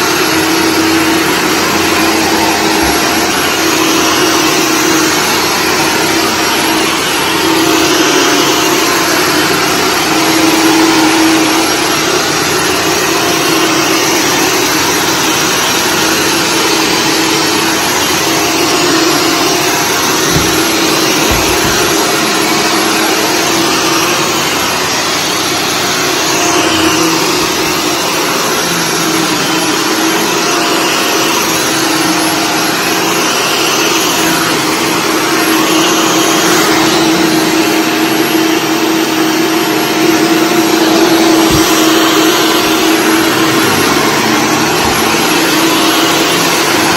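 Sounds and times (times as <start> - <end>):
upright vacuum running on carpet: 0.0 - 46.9.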